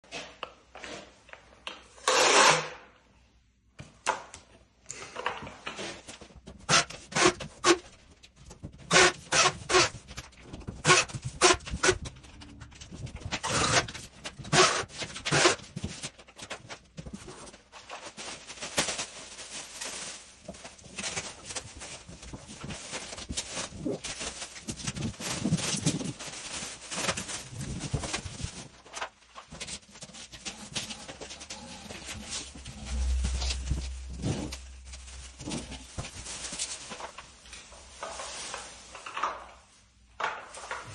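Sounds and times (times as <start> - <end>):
plastic sheet crinkling: 9.7 - 40.7
masking tape ripping: 10.8 - 12.1.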